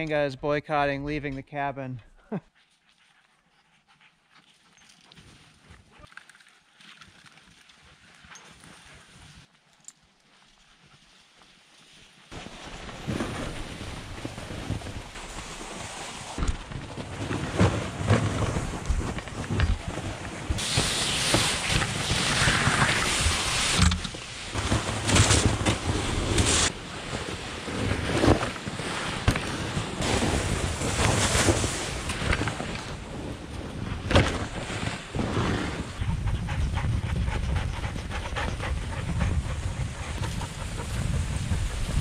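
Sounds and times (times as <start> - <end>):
sled runners scraping snow: 2.6 - 42.0
sled bumps and knocks: 16.4 - 36.2
wind buffeting microphone: 30.1 - 42.0.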